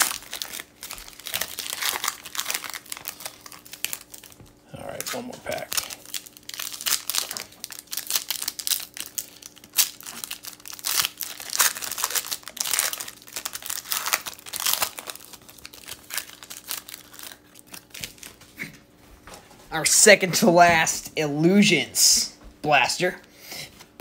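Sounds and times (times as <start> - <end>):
foil wrapper crinkling: 0.0 - 18.5.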